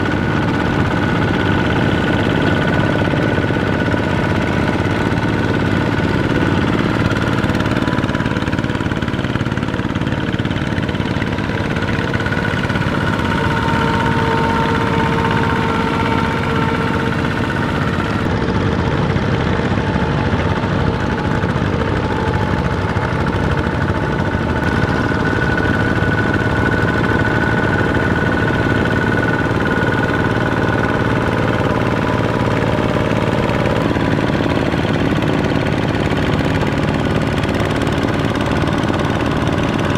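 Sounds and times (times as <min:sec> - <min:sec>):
diesel tractor engines chugging: 0:00.0 - 0:39.9.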